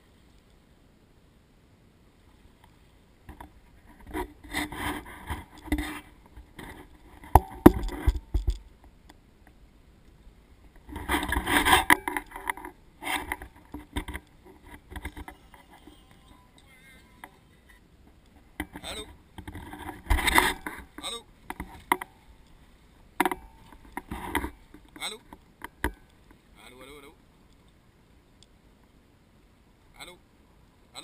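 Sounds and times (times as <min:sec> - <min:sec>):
scraping and rubbing: 0:03.3 - 0:08.7, 0:10.8 - 0:25.9.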